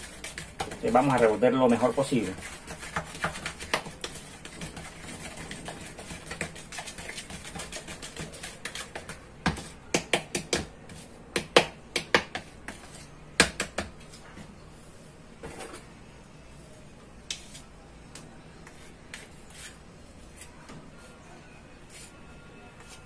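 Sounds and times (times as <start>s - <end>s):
stick stirring paste in plastic jug: 0.0s - 13.1s.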